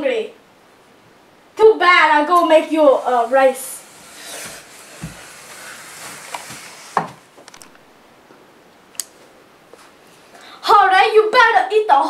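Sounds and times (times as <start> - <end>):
rustling movement: 2.4 - 8.0.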